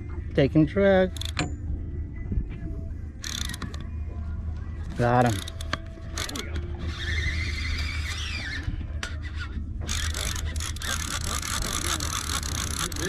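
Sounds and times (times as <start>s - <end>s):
steady low rumble: 0.0s - 6.8s
fishing reel drag whirring: 3.2s - 3.8s, 5.2s - 13.0s.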